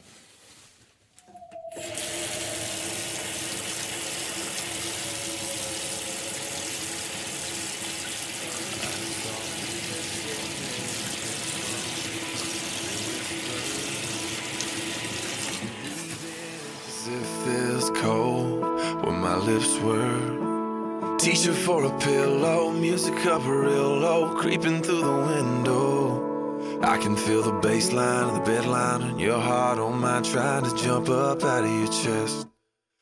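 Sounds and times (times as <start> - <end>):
short falling whine: 1.2 - 8.1
water running into bathtub: 1.6 - 16.8.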